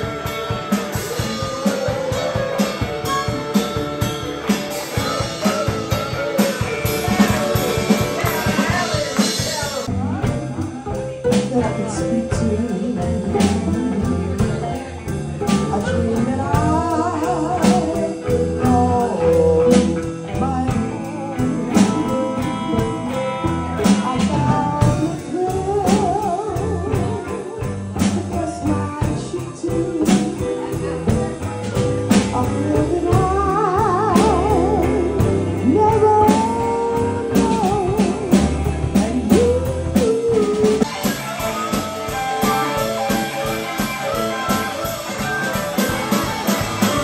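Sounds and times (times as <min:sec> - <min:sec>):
live band playing: 0:00.0 - 0:47.0
person singing with vibrato: 0:11.3 - 0:31.3, 0:32.1 - 0:47.0.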